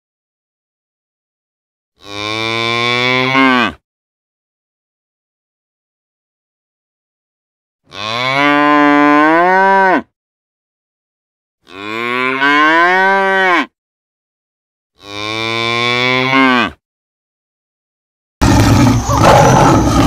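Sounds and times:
cattle mooing: 7.9 - 10.0, 11.7 - 13.7, 15.0 - 16.8, 18.4 - 20.0.

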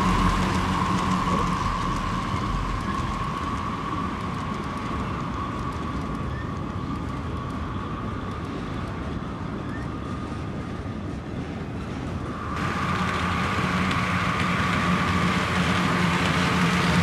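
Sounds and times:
model train rolling rumble: 0.0 - 17.0.

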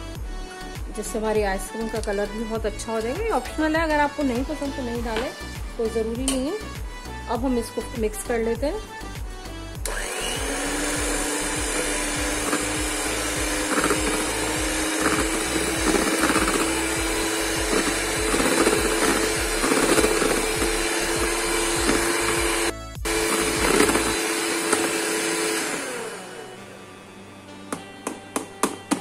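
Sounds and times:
electric hand mixer whisking: 9.8 - 26.9.

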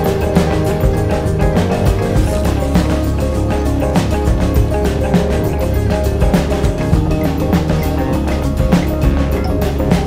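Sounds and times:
background music with beat: 0.0 - 10.0.

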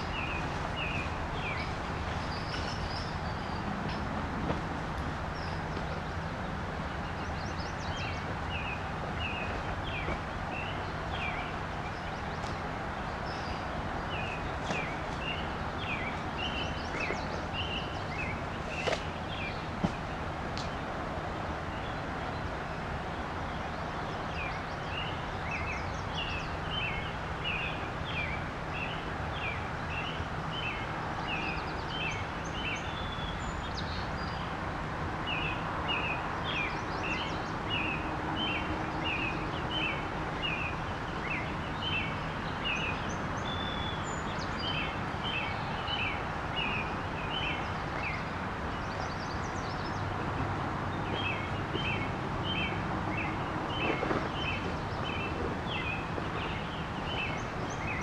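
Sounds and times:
bird chirping: 0.0 - 4.0, 5.3 - 20.1.

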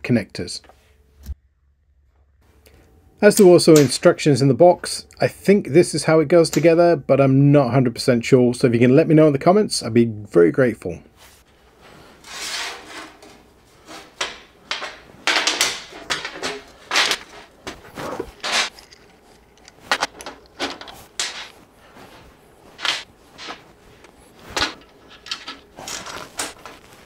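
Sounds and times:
metal parts knocking and clinking: 14.2 - 21.6, 22.8 - 26.9.

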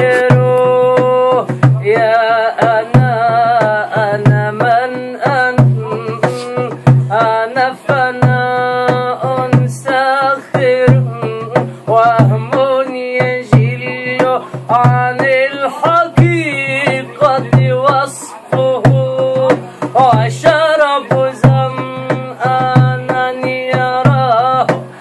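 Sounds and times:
hands drumming on plastic jug: 0.0 - 25.0
man singing unaccompanied: 0.0 - 25.0.

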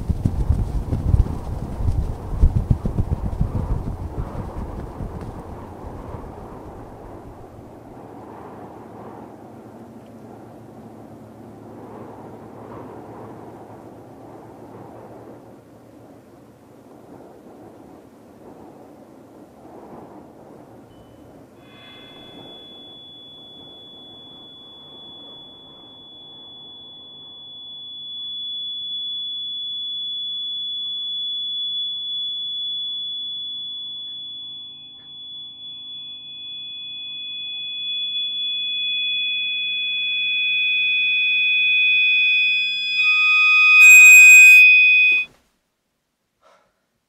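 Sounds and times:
faint low pulse: 0.0 - 7.8, 36.7 - 45.3
lower steady tones: 0.0 - 16.4, 20.9 - 45.3
low noisy rumble: 0.0 - 19.1
high-pitched electronic tone: 21.6 - 27.6, 36.4 - 45.3
hissing swell: 41.3 - 45.3.

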